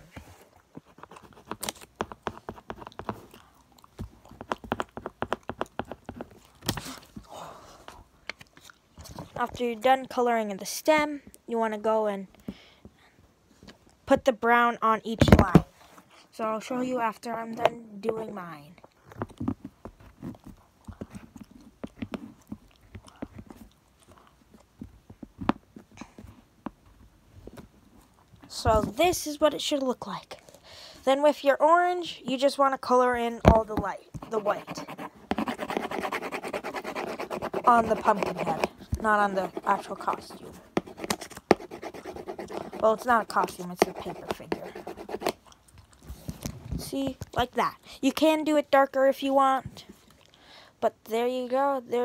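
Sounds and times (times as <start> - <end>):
pencil scratching on paper: 34.1 - 45.4.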